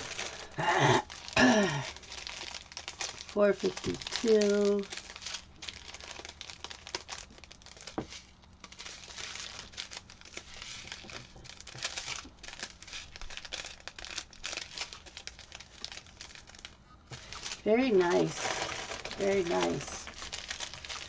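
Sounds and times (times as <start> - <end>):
plastic bags crinkling: 0.0 - 21.0.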